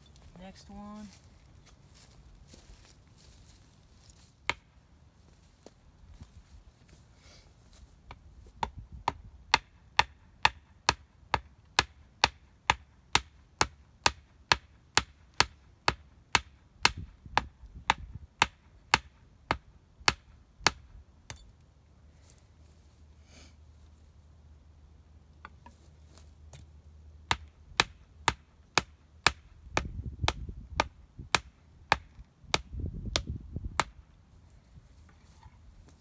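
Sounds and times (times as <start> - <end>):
hatchet striking wood: 8.6 - 21.5, 27.3 - 34.0.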